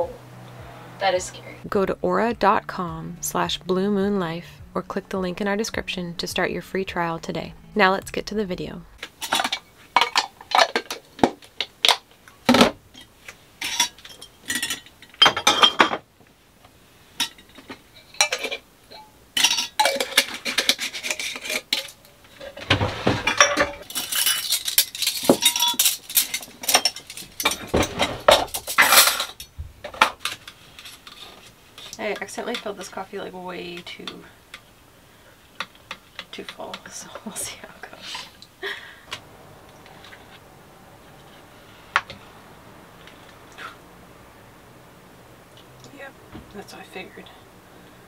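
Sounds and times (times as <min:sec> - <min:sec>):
glassware and cutlery clinking: 0:09.2 - 0:11.0, 0:12.9 - 0:16.0, 0:17.2 - 0:22.0, 0:23.3 - 0:31.2.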